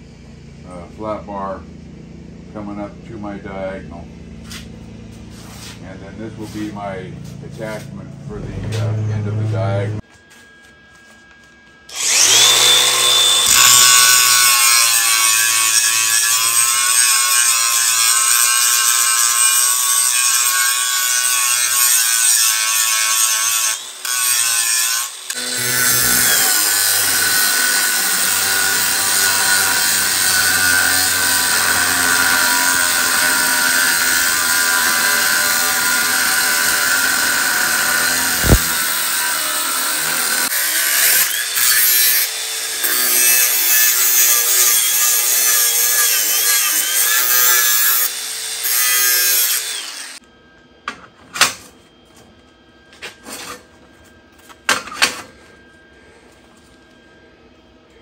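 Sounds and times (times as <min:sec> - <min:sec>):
angle grinder cutting steel: 0:05.3 - 0:10.4, 0:11.8 - 0:50.2.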